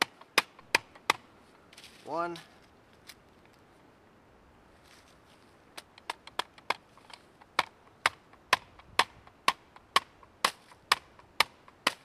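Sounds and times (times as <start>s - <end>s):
hammer knocking wooden stake: 0.0s - 1.3s, 5.8s - 12.0s.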